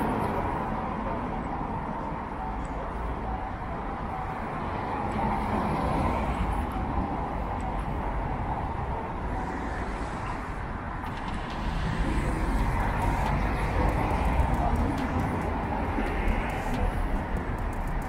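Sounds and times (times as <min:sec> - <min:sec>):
cars driving on road: 0:00.0 - 0:18.0.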